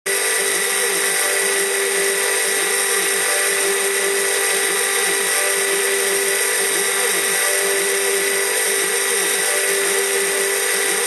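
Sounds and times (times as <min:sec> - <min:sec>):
mill spindle high whine: 0:00.1 - 0:11.0
motor rising and falling tones: 0:00.1 - 0:11.0.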